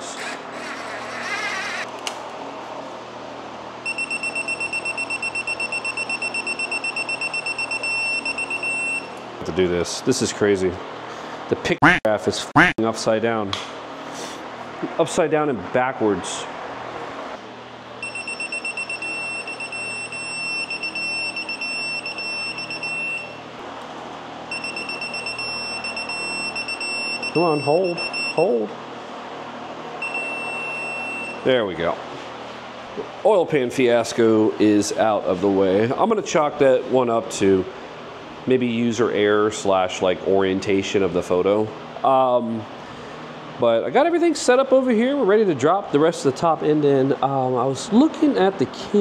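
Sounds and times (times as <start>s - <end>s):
digital torque wrench beeping: 3.9s - 9.1s, 18.0s - 23.4s, 24.5s - 28.4s.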